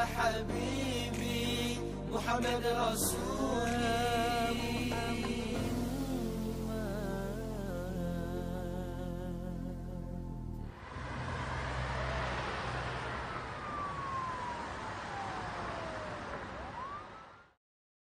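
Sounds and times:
music: 0:00.0 - 0:10.8
thin falling and rising tone: 0:04.4 - 0:17.4
rushing whoosh: 0:10.7 - 0:16.1.

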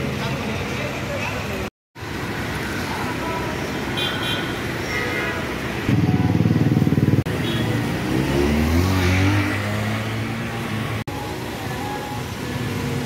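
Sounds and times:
vehicle engine accelerating: 0:05.9 - 0:11.1.

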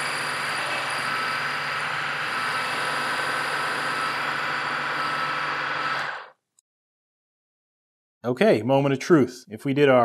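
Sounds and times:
constant machine whine: 0:00.0 - 0:06.3
milling machine cutting metal: 0:00.0 - 0:06.3.

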